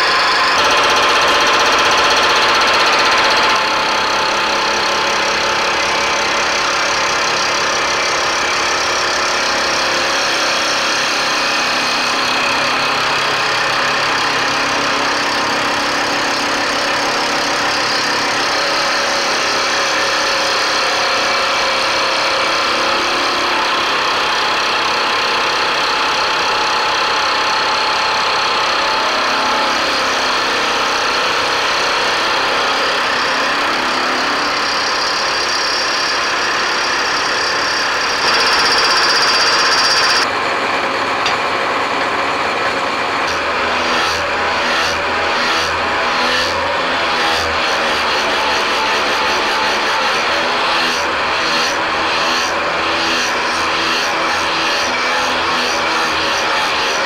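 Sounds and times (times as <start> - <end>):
milling machine cutting metal: 0.0 - 40.3.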